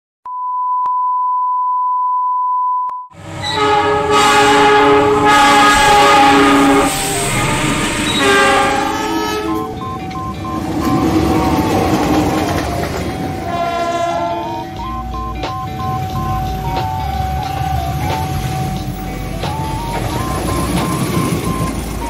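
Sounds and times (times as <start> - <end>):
locomotive horn blast: 3.2 - 15.2
passing train rumble: 3.2 - 22.0
steady test tone: 6.0 - 22.0.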